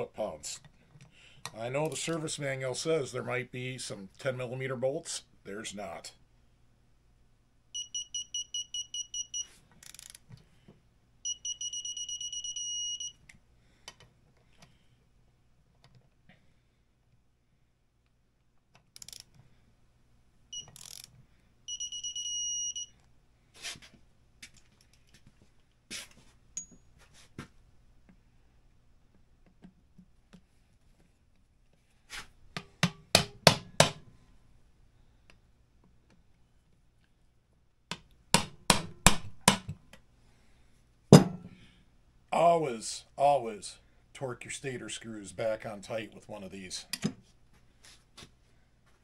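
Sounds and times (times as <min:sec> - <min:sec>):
high electronic beeps: 0:07.8 - 0:09.4.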